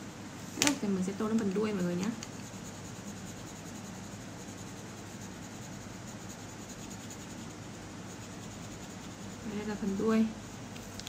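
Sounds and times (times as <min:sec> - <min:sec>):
pencil scratching on paper: 0:01.6 - 0:10.2.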